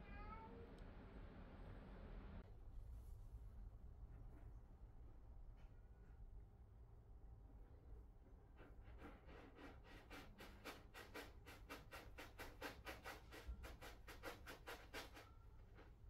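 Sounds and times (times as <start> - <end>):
cat scraping in litter: 9.0 - 15.4.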